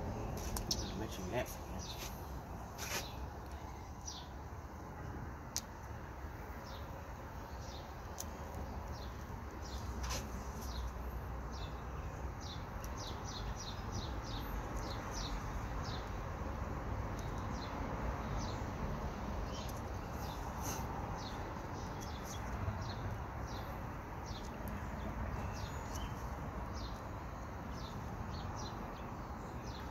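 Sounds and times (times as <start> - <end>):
small bird chirping: 6.6 - 16.2, 19.4 - 29.9.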